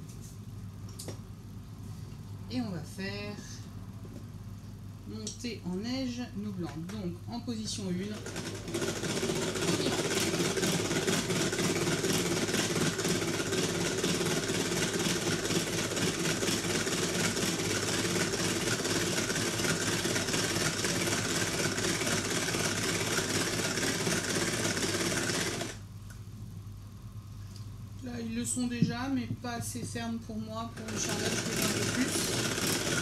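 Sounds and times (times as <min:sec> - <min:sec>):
hand-cranked whisk whirring: 0:08.1 - 0:25.8, 0:30.6 - 0:33.0.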